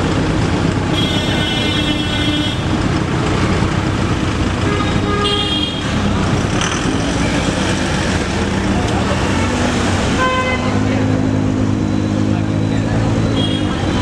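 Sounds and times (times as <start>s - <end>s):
road traffic: 0.0s - 14.0s
car horns honking: 0.9s - 2.8s, 4.6s - 6.1s, 9.1s - 11.1s, 13.3s - 14.0s.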